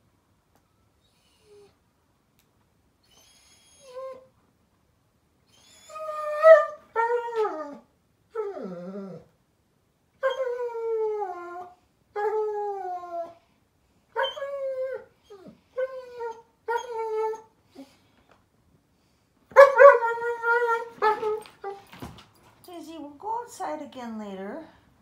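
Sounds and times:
puppy whimpering and howling: 3.1 - 4.3, 5.5 - 9.3, 10.2 - 13.4, 14.2 - 17.5, 19.8 - 21.8.

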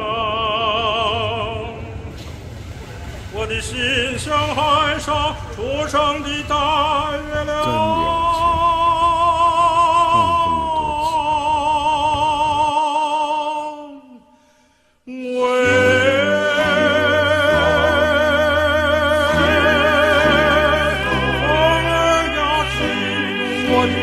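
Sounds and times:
operatic singing with vibrato: 0.0 - 2.1, 3.3 - 14.4, 15.0 - 24.0
accompaniment with low bass notes: 6.7 - 11.4.

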